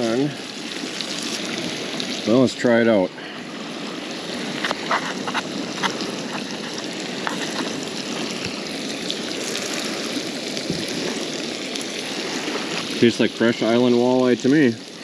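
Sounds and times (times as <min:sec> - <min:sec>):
fish frying in oil: 0:00.0 - 0:15.0.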